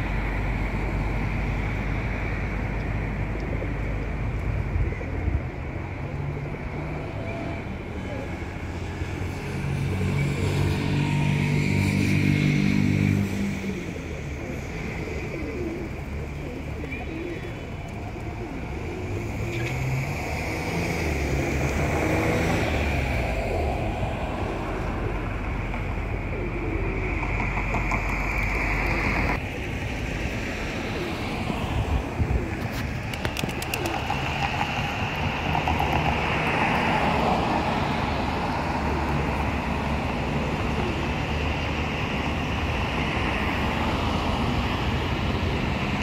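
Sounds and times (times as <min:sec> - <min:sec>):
road traffic: 0:00.0 - 0:46.0
vehicle engine hum: 0:00.0 - 0:46.0
pigeons cooing: 0:13.4 - 0:22.8, 0:23.4 - 0:29.4, 0:30.7 - 0:36.5.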